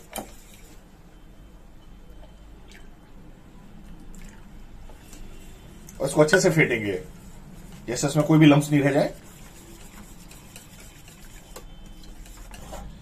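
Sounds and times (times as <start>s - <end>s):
whisk sloshing batter: 0.0s - 0.8s, 5.0s - 13.0s.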